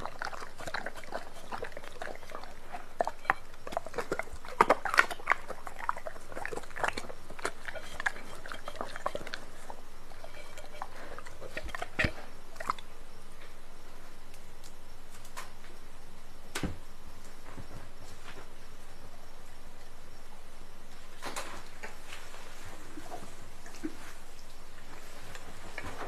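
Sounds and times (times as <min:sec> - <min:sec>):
dog licking plate: 0:00.0 - 0:12.8
dog chewing meat: 0:00.0 - 0:12.9.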